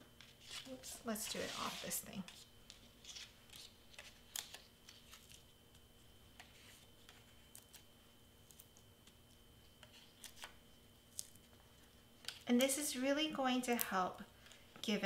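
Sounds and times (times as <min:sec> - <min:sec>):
paper rustling: 0:00.2 - 0:05.4.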